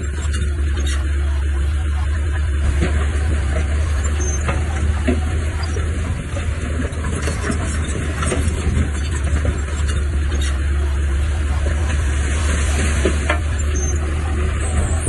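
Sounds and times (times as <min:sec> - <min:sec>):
diesel engine droning: 0:00.0 - 0:15.0
gritty crackle of clicks and knocks: 0:02.7 - 0:10.7.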